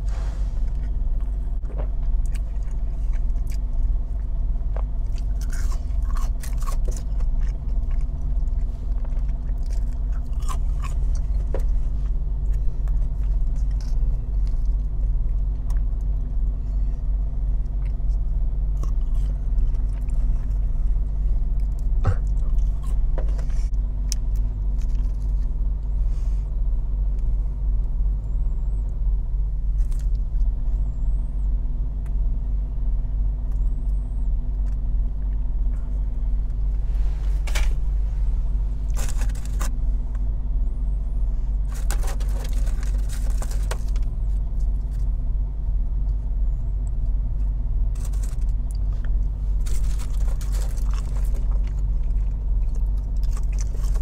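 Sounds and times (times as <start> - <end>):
car cabin rumble: 0.0 - 54.0
chewing food: 0.7 - 25.9, 29.8 - 31.0, 41.6 - 45.2, 46.0 - 54.0.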